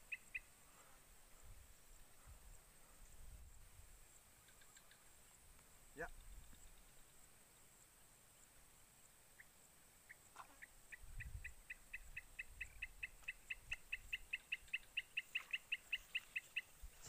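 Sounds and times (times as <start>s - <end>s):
bird calling: 0.0s - 0.6s, 10.1s - 17.0s.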